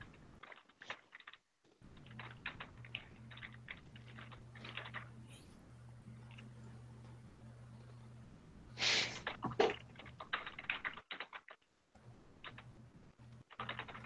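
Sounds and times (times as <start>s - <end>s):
steady low hum: 1.8s - 11.0s, 11.9s - 14.0s
typing on computer keyboard: 9.4s - 11.6s, 13.4s - 14.0s.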